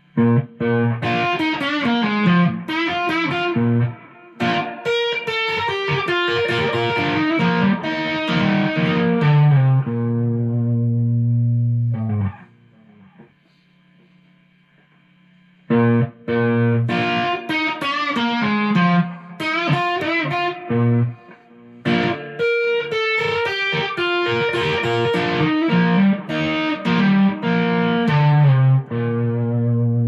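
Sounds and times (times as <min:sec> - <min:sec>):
electric guitar lead lick: 0:00.0 - 0:13.3, 0:15.7 - 0:30.0.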